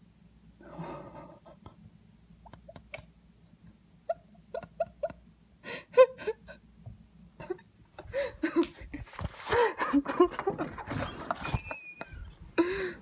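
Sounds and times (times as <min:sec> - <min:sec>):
person laughing: 0:02.4 - 0:03.0, 0:04.0 - 0:06.6, 0:07.4 - 0:13.0.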